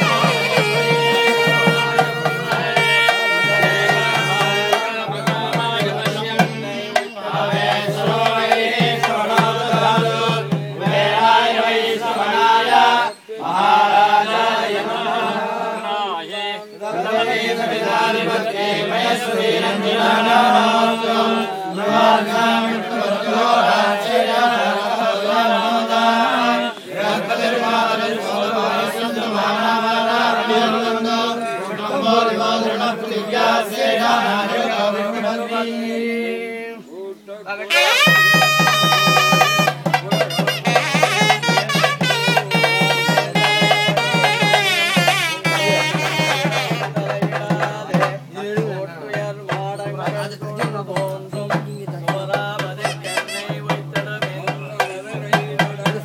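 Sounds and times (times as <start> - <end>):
reed pipe playing: 0.0 - 5.4, 37.7 - 47.2, 52.8 - 53.8
drum strokes: 0.0 - 11.9, 37.7 - 56.0
men chanting in unison: 0.0 - 56.0.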